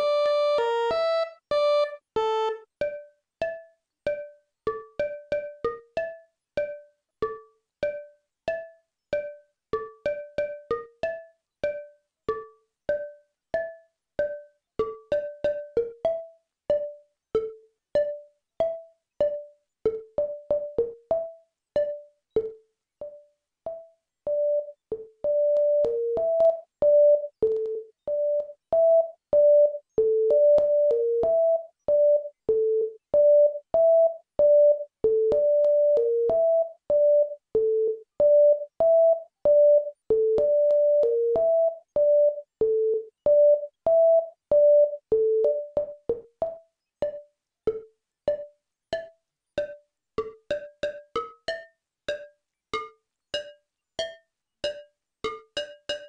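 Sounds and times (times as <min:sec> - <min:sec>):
synth looping melody: 0:00.0 - 0:03.0, 0:50.5 - 0:56.0.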